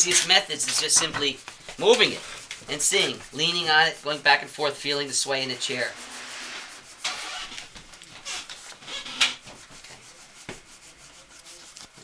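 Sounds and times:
wooden chair joints creaking: 6.3s - 9.5s.

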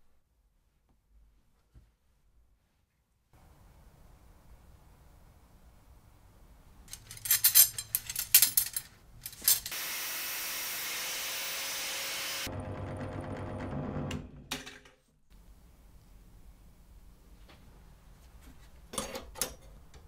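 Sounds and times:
angle grinder cutting steel rod: 9.7s - 12.5s
drill press drilling: 9.7s - 14.3s.

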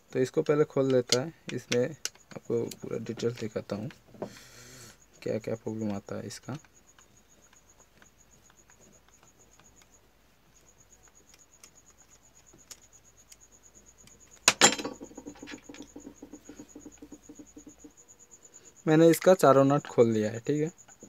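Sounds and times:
crickets chirping: 0.0s - 21.0s
screwdriver ticks: 0.4s - 3.5s
metal screwdriver clattering on bench: 14.5s - 15.8s.

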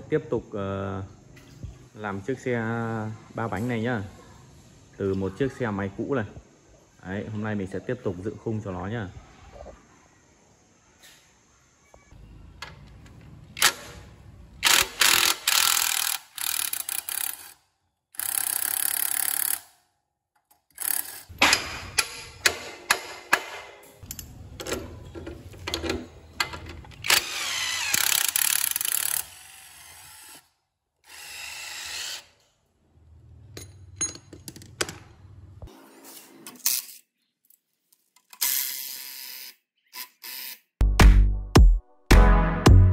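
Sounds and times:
cordless drill whirring: 27.0s - 30.4s.

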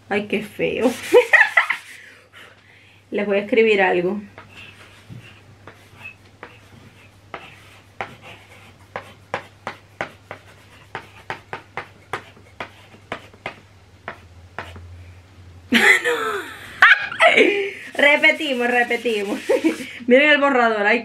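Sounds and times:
chalk scratching on chalkboard: 0.8s - 2.0s, 4.4s - 14.9s, 17.9s - 19.9s
person speaking: 17.2s - 20.4s.

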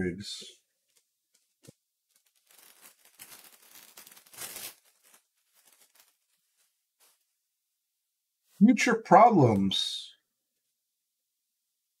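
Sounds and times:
foil wrapper tearing and crinkling: 2.1s - 7.2s.

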